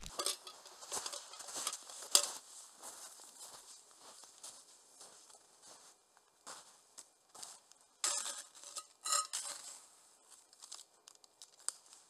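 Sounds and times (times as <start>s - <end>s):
footsteps crunching through snow: 0.0s - 7.7s.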